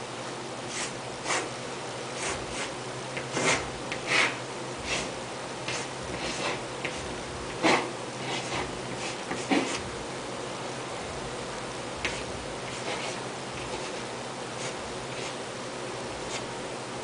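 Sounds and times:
low steady hum: 0:00.0 - 0:17.0
chalk scratching on blackboard: 0:00.7 - 0:01.5, 0:02.2 - 0:09.8, 0:12.0 - 0:14.0, 0:14.6 - 0:15.4, 0:16.2 - 0:16.5.

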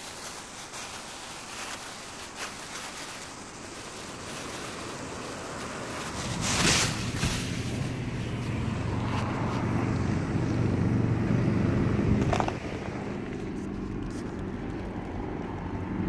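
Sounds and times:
road traffic hiss: 0:00.0 - 0:16.0
vehicle engine hum: 0:00.0 - 0:16.0
wind over microphone: 0:04.2 - 0:16.0.

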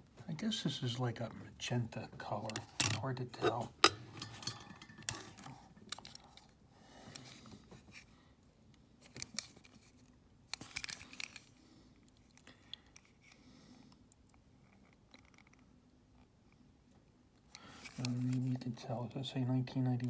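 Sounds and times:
metal toy truck being handled: 0:02.4 - 0:06.6, 0:09.0 - 0:11.5.

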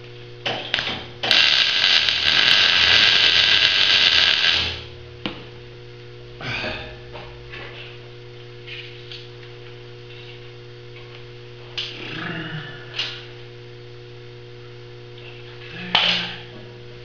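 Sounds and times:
steady electrical hum: 0:00.0 - 0:17.0
welding arc crackling: 0:00.7 - 0:04.9.

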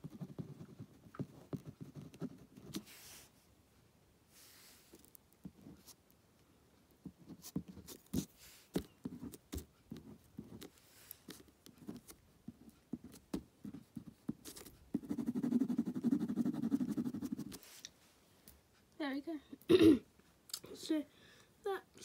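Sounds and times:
rapid pen scribbling: 0:00.0 - 0:03.1, 0:07.2 - 0:17.6
pen drawing on paper: 0:13.0 - 0:17.6.

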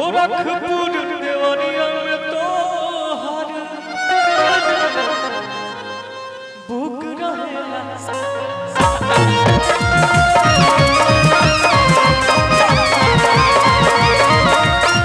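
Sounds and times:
reedy accordion-like lead melody: 0:03.8 - 0:15.0
low bass notes: 0:08.8 - 0:15.0.

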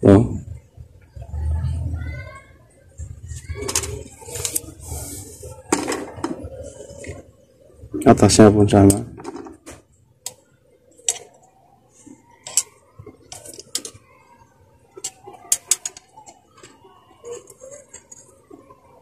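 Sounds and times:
fishing rod sections clicking: 0:11.0 - 0:11.4, 0:12.4 - 0:12.7, 0:13.3 - 0:14.0, 0:15.0 - 0:18.3.

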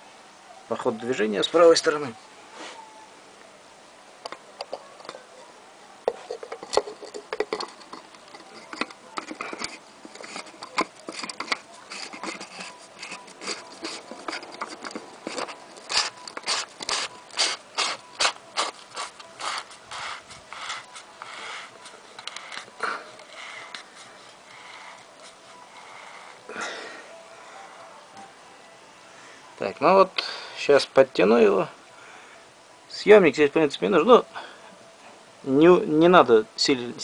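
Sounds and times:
metal scraping and clicking: 0:06.1 - 0:26.4.

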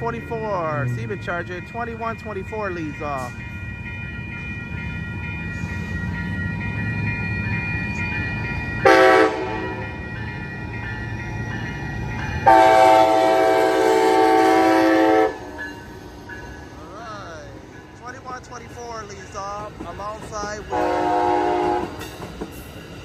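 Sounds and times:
crossing bell ringing: 0:00.0 - 0:23.0
train rumbling: 0:00.0 - 0:23.0
locomotive air horn blasts: 0:08.8 - 0:09.8, 0:12.5 - 0:15.6, 0:20.7 - 0:22.0.

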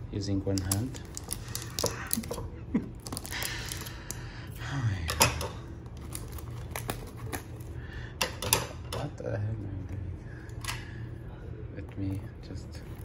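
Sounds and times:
plastic shrink wrap rustling: 0:00.7 - 0:04.0, 0:05.9 - 0:07.8.

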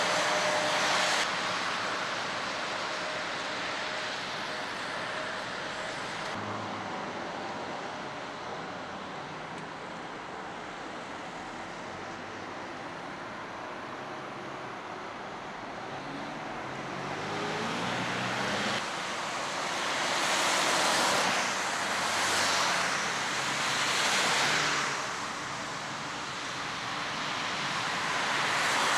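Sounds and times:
tyre spray from passing vehicles: 0:17.0 - 0:28.9
tyres hissing on wet asphalt: 0:18.8 - 0:28.9.

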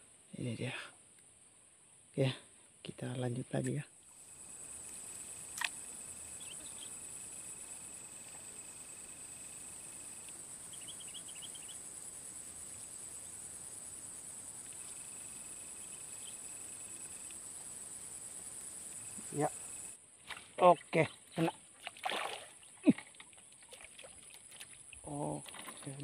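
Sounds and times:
high-pitched insect chorus: 0:03.0 - 0:20.0, 0:20.6 - 0:26.0
short insect chirps: 0:03.6 - 0:26.0
sharp click: 0:05.6 - 0:05.8.

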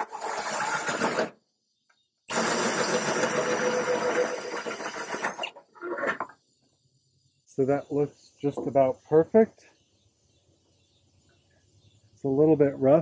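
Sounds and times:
drill hole saw cutting metal: 0:02.3 - 0:05.5.

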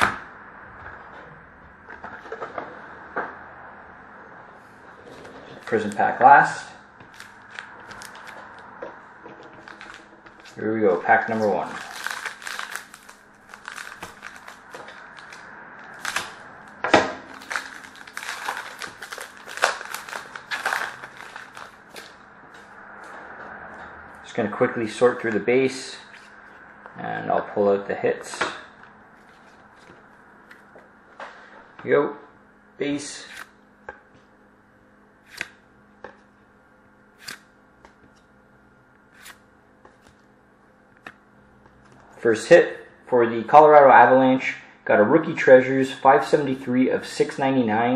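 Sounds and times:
faint steady hum: 0:00.0 - 0:47.9
wrapper tearing and crinkling: 0:07.2 - 0:08.4, 0:09.6 - 0:10.6, 0:11.2 - 0:16.4, 0:17.3 - 0:22.2
trading cards swishing and flicking: 0:33.2 - 0:33.5, 0:35.3 - 0:35.6, 0:37.2 - 0:38.2, 0:39.2 - 0:40.2.

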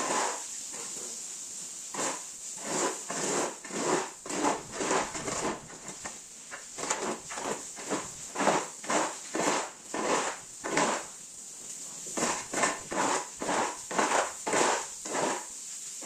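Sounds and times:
scrubbing on wet concrete floor: 0:00.0 - 0:16.0.

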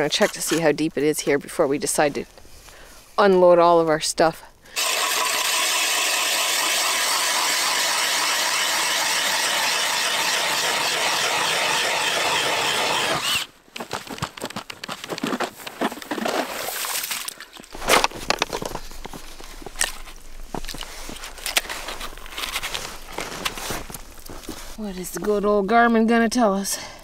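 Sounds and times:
drill driving ice auger: 0:04.8 - 0:13.5
scrapes and knocks: 0:17.7 - 0:24.8.

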